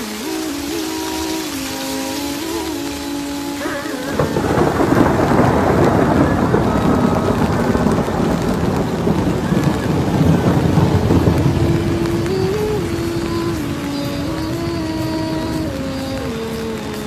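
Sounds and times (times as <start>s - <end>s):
rain falling: 0.0s - 17.0s
thunder rumbling: 0.0s - 17.0s.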